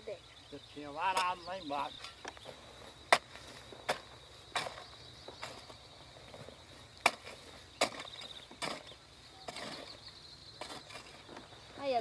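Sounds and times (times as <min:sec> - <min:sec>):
insects trilling faintly: 0:00.0 - 0:12.0
hoe blade striking soil: 0:03.1 - 0:05.7, 0:07.0 - 0:10.0, 0:10.6 - 0:11.5.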